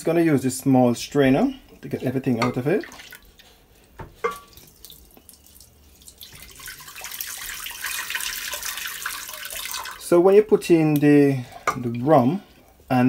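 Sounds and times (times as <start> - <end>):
liquid pouring into pot: 4.2 - 10.1.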